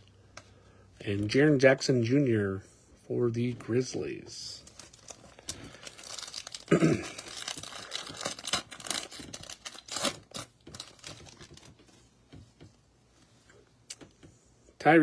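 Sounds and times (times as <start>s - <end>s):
foil wrapper tearing and crinkling: 4.7s - 11.7s.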